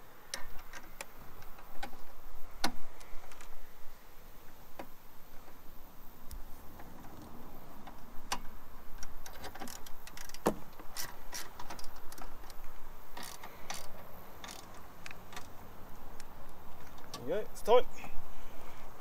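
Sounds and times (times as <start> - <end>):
ratchet wrench clicking: 13.2 - 15.5.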